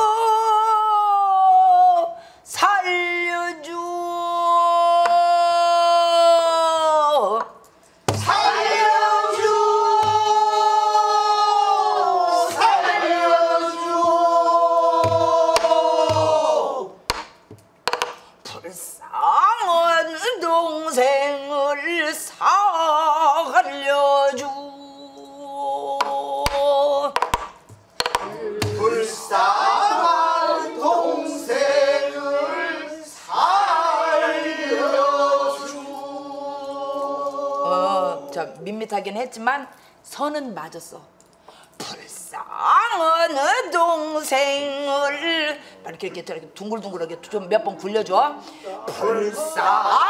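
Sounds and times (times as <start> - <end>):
group singing in unison: 8.1 - 17.2, 28.0 - 38.6, 48.6 - 50.0
drum stick clicks: 17.1 - 18.2.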